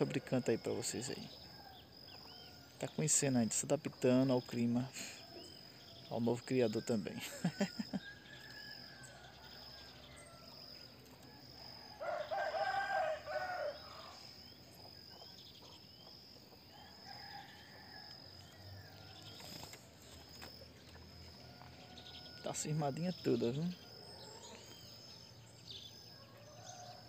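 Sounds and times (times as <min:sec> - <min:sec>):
rooster crowing: 0:07.4 - 0:14.4, 0:16.6 - 0:19.4, 0:21.1 - 0:25.2, 0:26.1 - 0:27.0.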